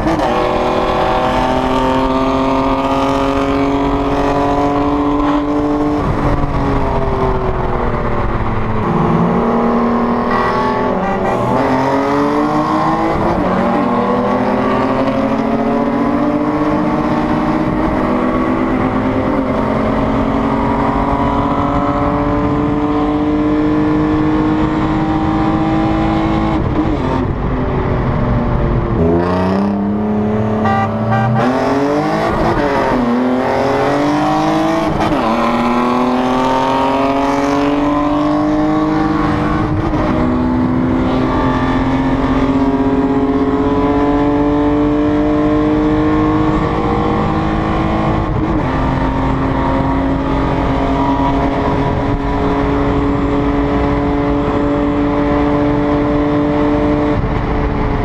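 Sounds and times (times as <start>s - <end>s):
car engine revving through gears: 0.0s - 58.0s.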